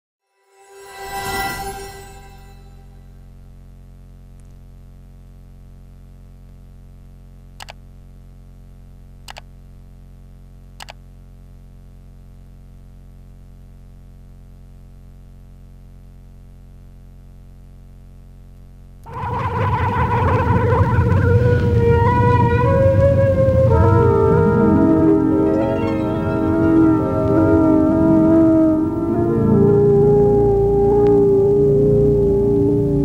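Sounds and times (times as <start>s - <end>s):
sharp clicks: 10.8s - 11.0s.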